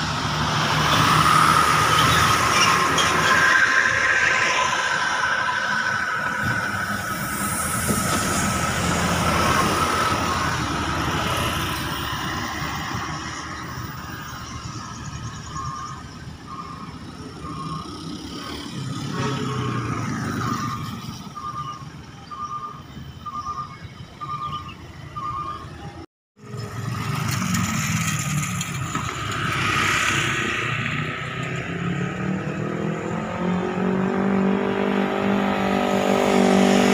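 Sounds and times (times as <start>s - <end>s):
vehicles passing on road: 0.0s - 36.9s
short beeps: 20.4s - 25.9s.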